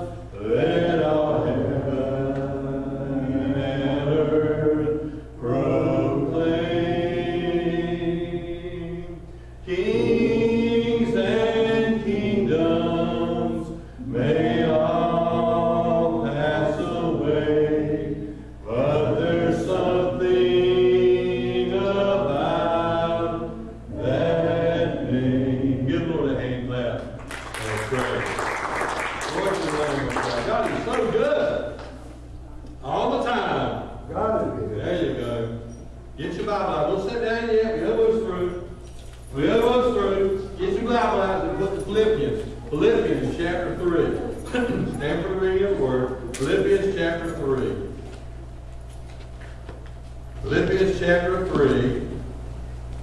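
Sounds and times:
voices singing a slow hymn: 0.0 - 26.9, 34.8 - 48.6
steady low hum: 0.0 - 53.0.

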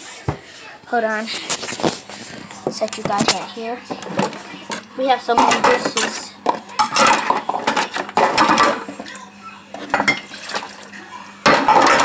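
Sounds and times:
dishes clinking in steel sink: 3.0 - 9.2, 9.8 - 10.8, 11.4 - 12.0.

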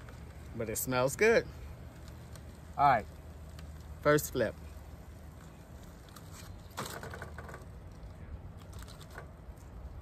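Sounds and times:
steady low hum: 0.0 - 10.0
aluminium foil crinkling: 4.8 - 9.8.

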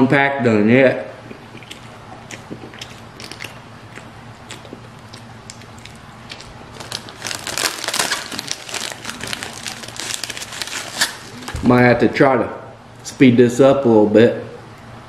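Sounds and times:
wet mouth clicks chewing: 1.2 - 6.5
plastic wrapper crinkling: 5.9 - 11.6.

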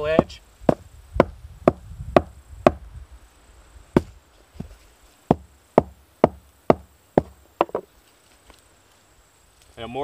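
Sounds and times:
stone axe chopping branch: 5.3 - 7.9.

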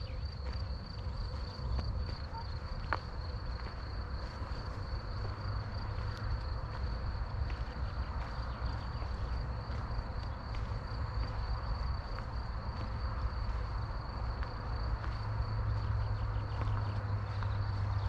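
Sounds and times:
insects trilling: 0.0 - 18.0.

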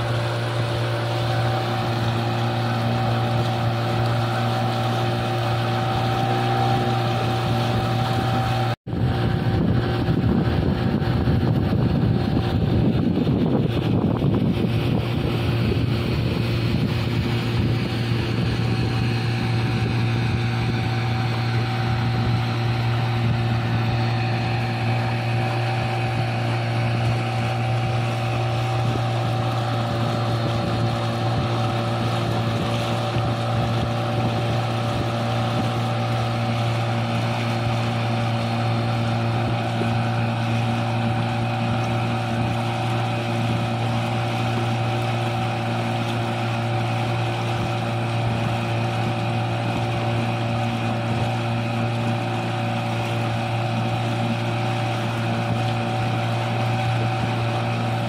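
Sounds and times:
outboard motor humming: 0.0 - 58.0
wind and water rushing: 0.0 - 58.0.

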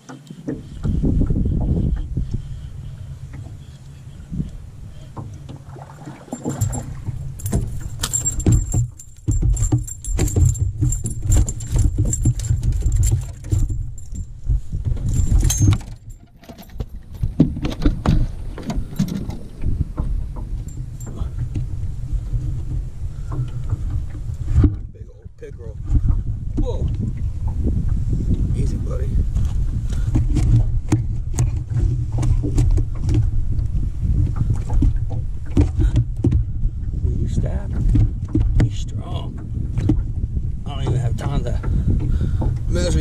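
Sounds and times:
fishing tackle jangling and clicking: 6.3 - 17.4, 20.6 - 21.5
steady low rumble: 16.8 - 43.0.

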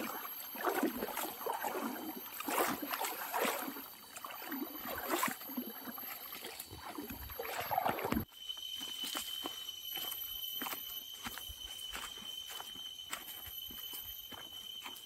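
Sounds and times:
feet splashing through water: 0.0 - 8.3.

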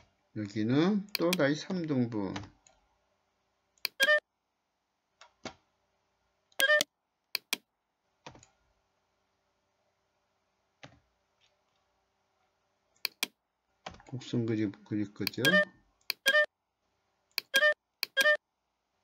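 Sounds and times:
computer mouse clicking: 1.1 - 2.8, 7.4 - 7.6, 13.0 - 13.4, 15.2 - 16.3, 17.4 - 18.4
short tone: 17.6 - 18.4.

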